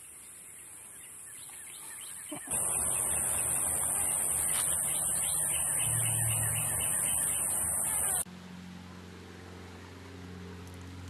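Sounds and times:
high-pitched insect buzz: 2.5 - 8.2.

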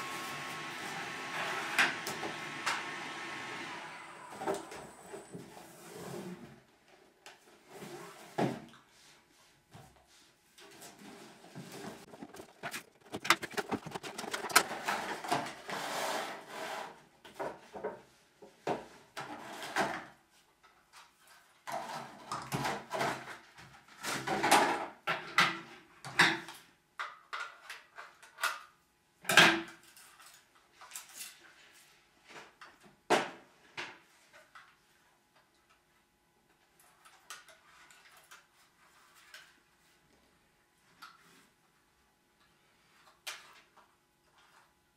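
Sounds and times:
plastic packaging rustling: 11.6 - 15.3.

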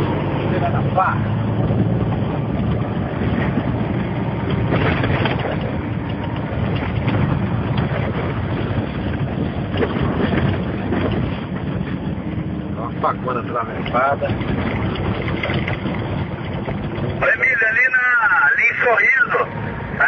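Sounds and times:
vehicle engine and road rumble: 0.0 - 20.0
knocks from rough road: 1.7 - 12.2.

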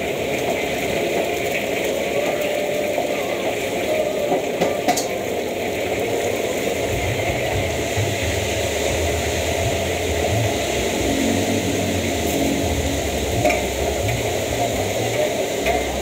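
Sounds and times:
gas burner: 0.0 - 16.0
oil sizzling in wok: 0.0 - 16.0
low rumble: 6.8 - 16.0.

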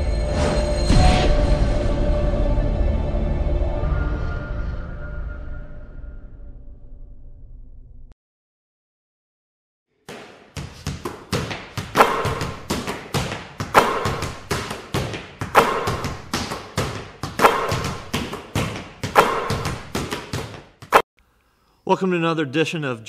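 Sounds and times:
basketballs dribbling: 10.1 - 21.0.

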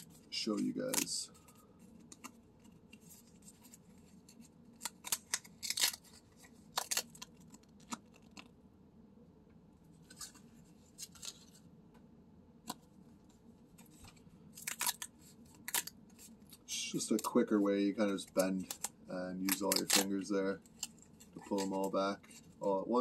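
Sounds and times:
paper tabs snapping and tearing: 4.8 - 8.5, 14.6 - 15.9, 18.3 - 20.2.

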